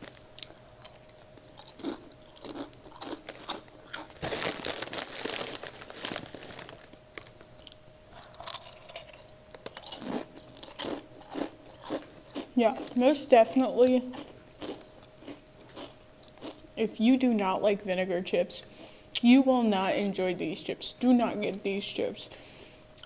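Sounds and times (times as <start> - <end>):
crunching potato chips: 0.0 - 13.3, 14.0 - 16.8.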